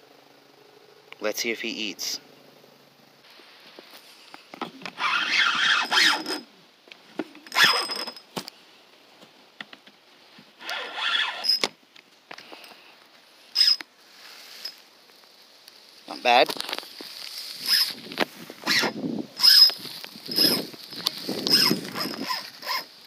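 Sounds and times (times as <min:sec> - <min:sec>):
fishing reel whirring and squealing: 0:05.0 - 0:06.5, 0:07.4 - 0:08.2, 0:10.6 - 0:11.7, 0:13.6 - 0:13.8, 0:17.6 - 0:18.0, 0:18.6 - 0:23.0.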